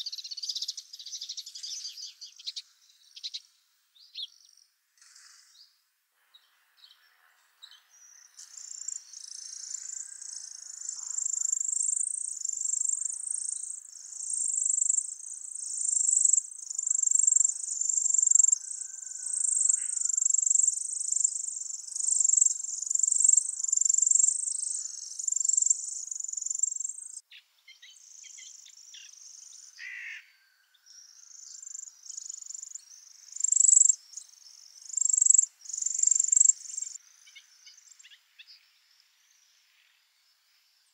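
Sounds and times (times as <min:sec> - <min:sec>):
nestlings high-pitched chirps: 0:08.4 - 0:27.2, 0:31.2 - 0:37.4.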